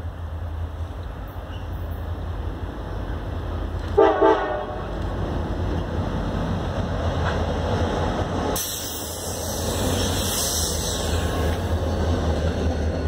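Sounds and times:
diesel locomotive engine rumble: 0.0s - 13.0s
locomotive horn blast: 3.9s - 5.0s
loud hiss: 8.6s - 11.8s.

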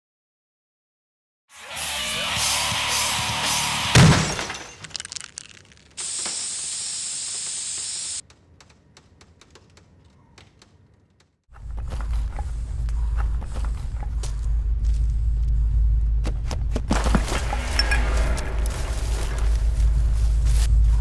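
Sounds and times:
glass debris ticking: 4.3s - 6.0s
steady hiss: 6.0s - 8.2s
loud low rumble: 12.4s - 21.0s.

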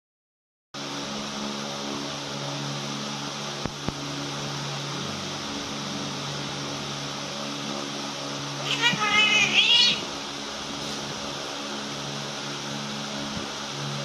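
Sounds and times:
electric fan motor hum: 0.8s - 14.0s.

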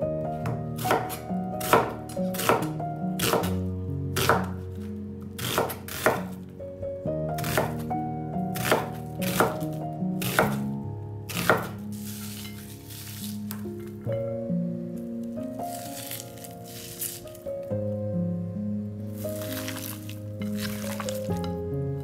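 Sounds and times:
background music: 0.0s - 22.0s
knife striking cutting board: 0.4s - 3.6s, 5.4s - 6.4s, 7.4s - 7.8s, 8.6s - 10.6s, 11.3s - 13.6s, 19.4s - 21.6s.

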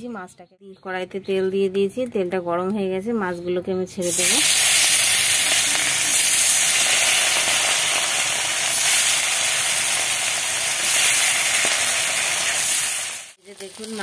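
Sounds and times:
fish frying in hot oil: 4.1s - 14.0s.

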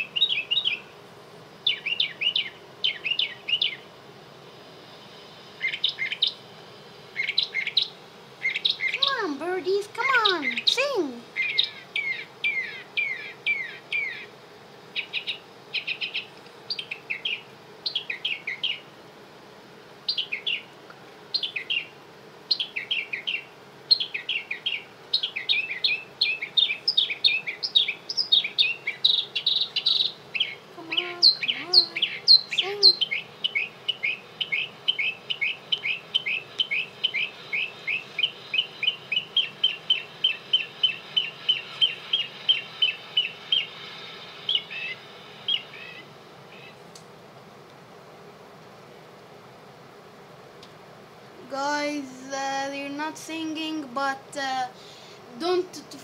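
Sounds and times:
songbird chirps and trills: 0.0s - 47.1s, 50.6s - 56.0s
lower wavering bird call: 10.1s - 14.3s, 15.0s - 18.9s, 22.5s - 46.8s.

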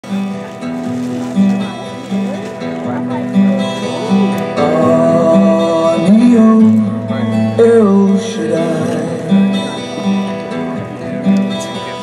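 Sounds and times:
song with guitar and singing: 0.2s - 12.0s.

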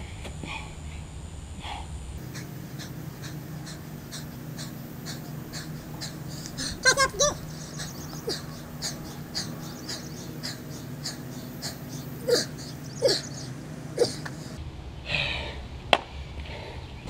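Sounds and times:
man panting hard: 0.0s - 15.6s
man groaning with strain: 5.1s - 10.3s.

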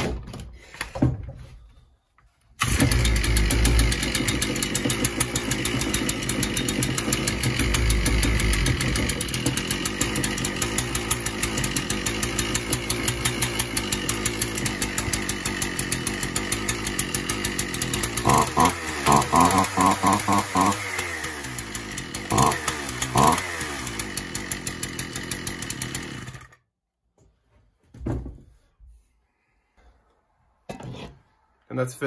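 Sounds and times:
trimmer engine running: 2.6s - 26.6s.

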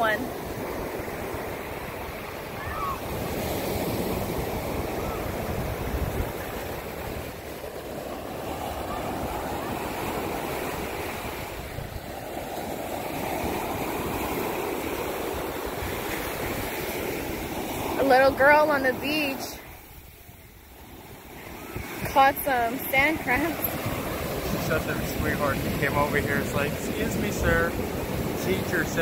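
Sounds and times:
ocean surf breaking on beach: 0.0s - 29.0s
wind on microphone: 0.0s - 29.0s.

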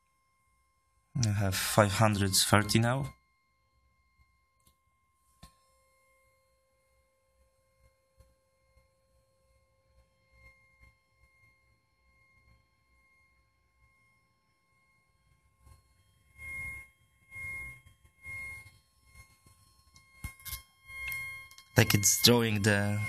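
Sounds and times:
high-pitched tone: 20.2s - 23.0s.

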